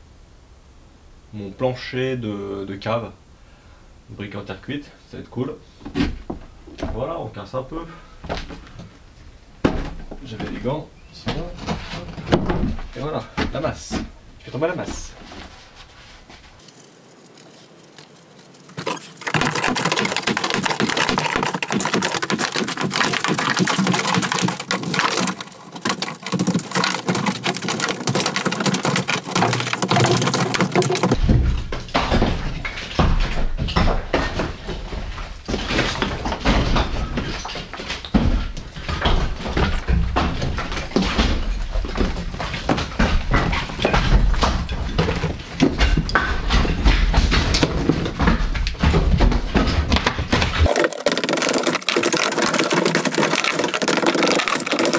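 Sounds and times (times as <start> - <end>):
sledgehammer heavy thuds: 9.6 - 15.2, 26.6 - 50.7
bricks and rubble clattering: 18.7 - 54.9.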